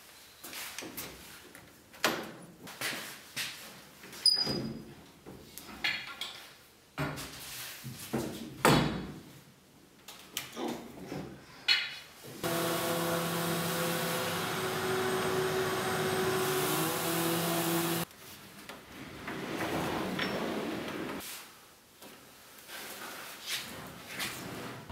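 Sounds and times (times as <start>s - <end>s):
orbital sander running: 12.4s - 18.1s.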